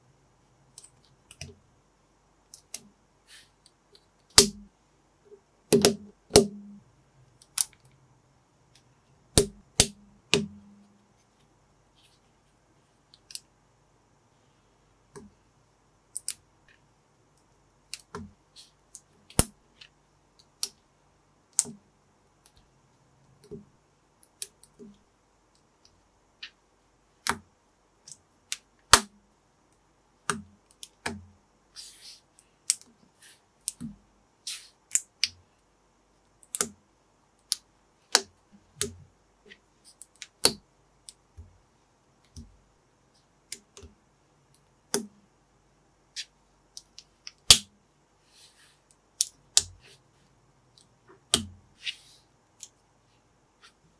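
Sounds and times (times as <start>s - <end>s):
plastic bricks snapping together: 46.8s - 47.7s.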